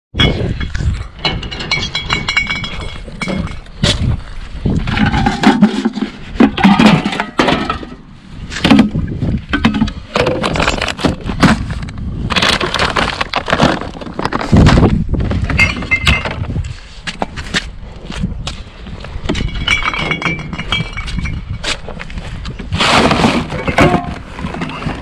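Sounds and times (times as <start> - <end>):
glass bottles and cans clinking: 0.2 - 3.7, 15.5 - 16.4, 19.3 - 21.6, 23.5 - 25.0.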